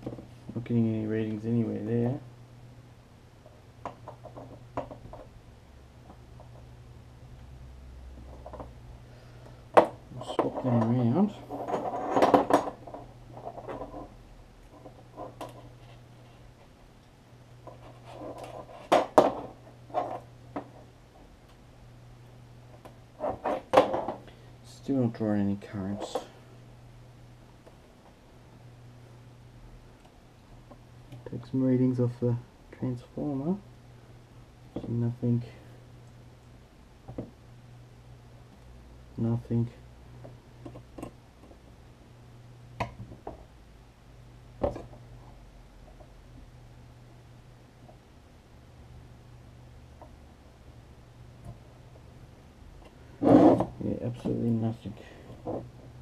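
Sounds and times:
faint low hum: 0.0s - 56.0s.

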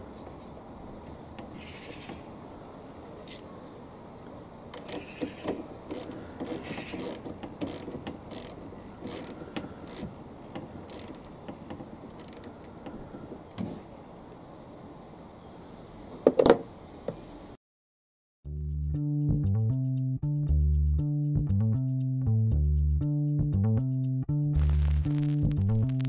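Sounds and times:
ratchet wrench clicking: 3.3s - 3.5s, 4.8s - 10.1s, 10.8s - 11.3s, 12.2s - 12.5s.

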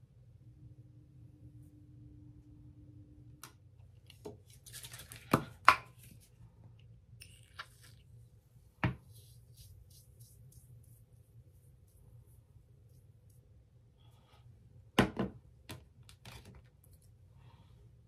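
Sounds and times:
soft strokes through hair: 7.8s - 14.6s.

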